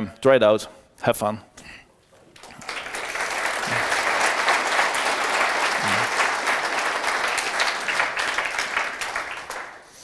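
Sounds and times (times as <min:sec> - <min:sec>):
audience applauding: 0:02.3 - 0:09.8.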